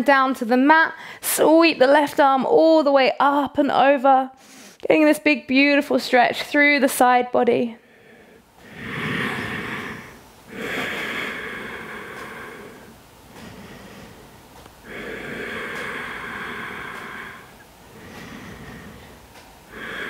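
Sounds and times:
person breathing deeply: 7.8 - 20.0.

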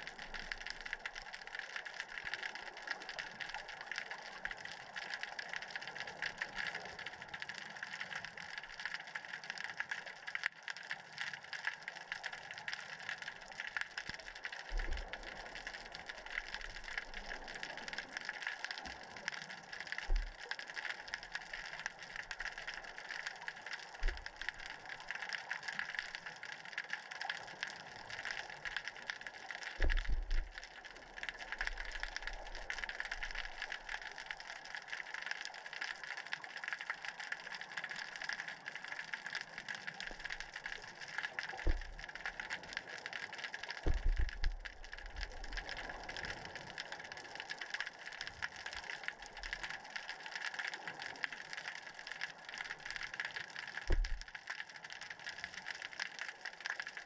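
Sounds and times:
low thumps: 43.9 - 44.5.

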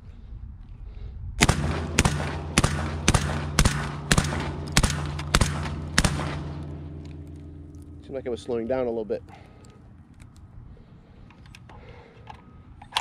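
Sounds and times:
suppressed shotgun shots: 1.4 - 8.0.

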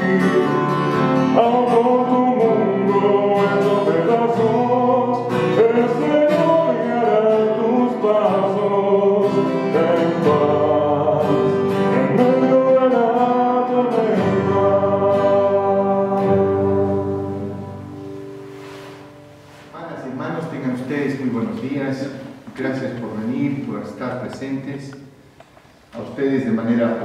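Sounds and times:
person singing a hymn: 0.0 - 19.7
strummed acoustic guitar: 0.0 - 20.0.

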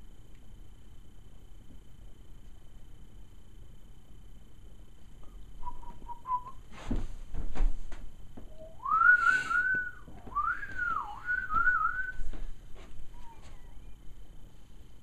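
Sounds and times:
person whistling a tune: 5.6 - 6.6, 8.5 - 12.3.

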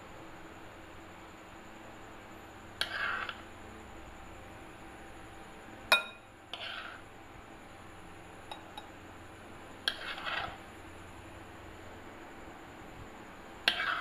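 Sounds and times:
spoon scraping bowl: 2.8 - 3.4, 6.5 - 7.0, 9.8 - 10.7, 13.7 - 14.0
spoon clinking glass bowl: 5.9 - 6.3, 8.5 - 8.9.

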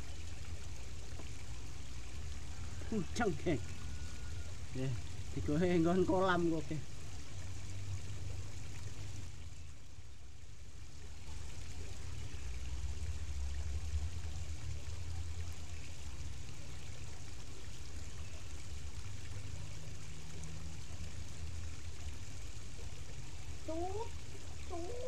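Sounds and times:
water trickling over rocks: 0.0 - 25.0.

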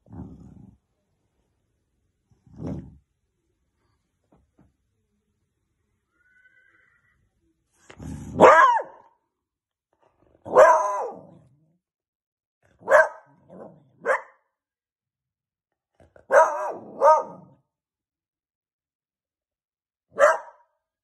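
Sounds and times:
puppy barking: 8.4 - 9.2, 10.5 - 11.4, 12.8 - 14.5, 16.2 - 17.6, 20.1 - 20.7.

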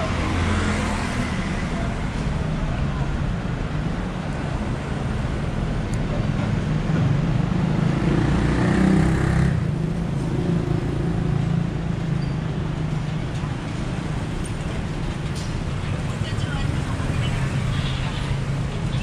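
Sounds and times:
rumble of street traffic: 0.0 - 19.0
vehicle passing: 6.7 - 11.3.

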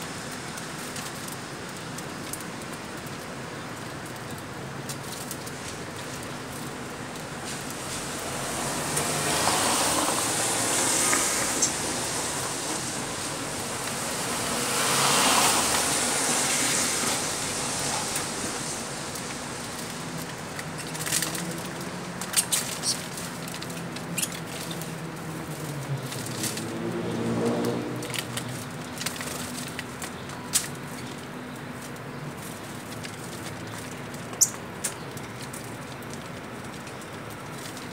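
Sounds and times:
birds clicking and tapping: 11.0 - 11.8, 19.1 - 26.7, 27.6 - 37.9.

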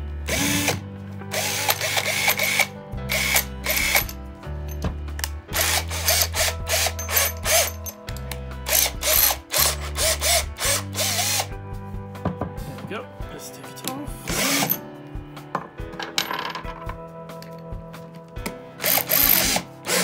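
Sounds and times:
cordless drill spinning in bursts: 0.3 - 4.1, 5.6 - 7.8, 8.7 - 11.5, 14.3 - 14.7, 18.8 - 20.0.

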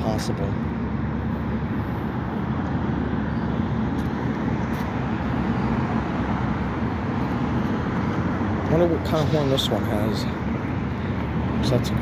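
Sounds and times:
heavy vehicle engines rumbling: 0.0 - 12.0.

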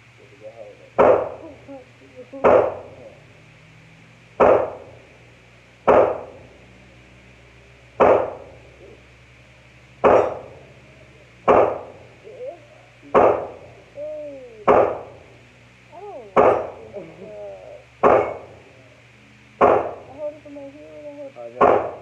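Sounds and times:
pistol gunshots: 1.0 - 1.4, 4.4 - 4.9, 5.9 - 6.4, 8.0 - 8.5, 10.0 - 10.6, 11.5 - 12.0, 13.1 - 13.6, 14.7 - 15.1, 18.0 - 18.5, 19.6 - 20.0, 21.6 - 22.0.

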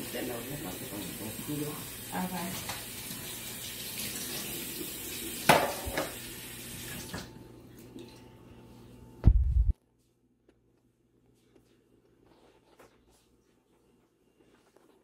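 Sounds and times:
tap running into sink: 5.4 - 7.3
loud low thump: 9.2 - 9.8.

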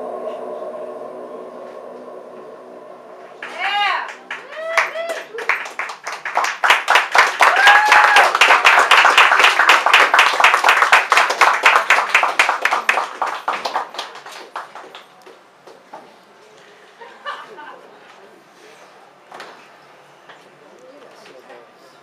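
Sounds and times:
person whooping: 3.4 - 5.7, 7.4 - 8.5
audience clapping: 3.4 - 15.8.

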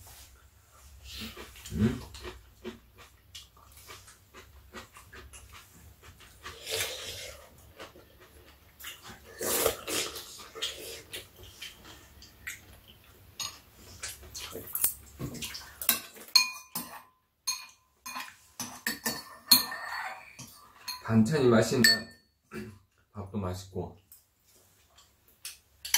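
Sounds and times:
slurping noodles and soup: 0.2 - 12.2
utensils clinking on bowls: 13.4 - 13.6, 15.8 - 22.3.

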